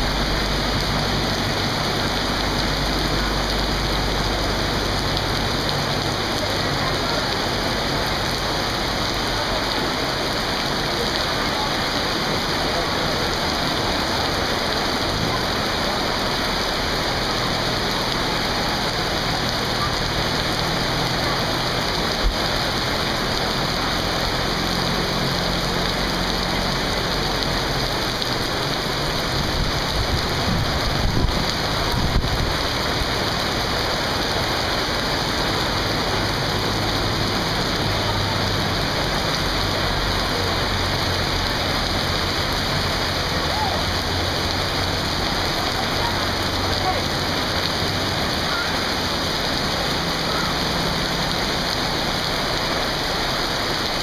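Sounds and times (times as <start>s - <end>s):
heavy rain falling: 0.0s - 54.0s
vehicles driving through floodwater: 0.0s - 54.0s.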